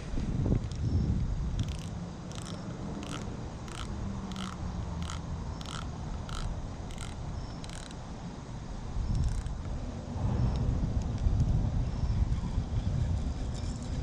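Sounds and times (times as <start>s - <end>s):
insect raspy chirps: 0.7s - 8.1s, 9.0s - 9.6s.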